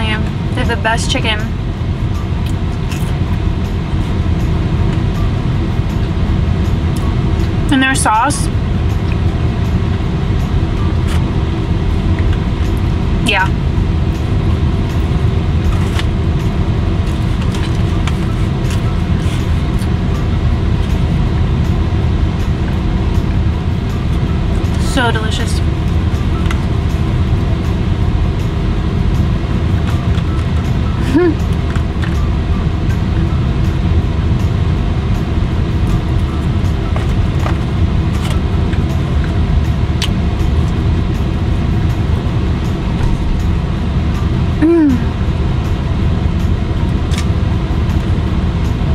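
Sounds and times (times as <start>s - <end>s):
car cabin hum and rumble: 0.0s - 48.9s.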